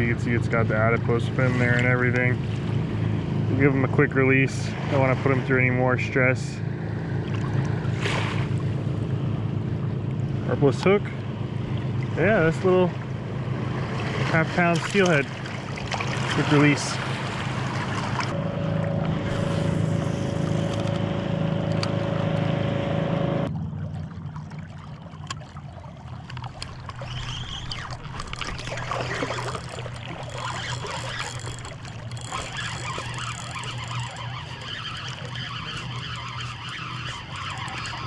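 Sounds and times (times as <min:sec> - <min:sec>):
river rushing and gurgling: 0:11.4 - 0:38.0.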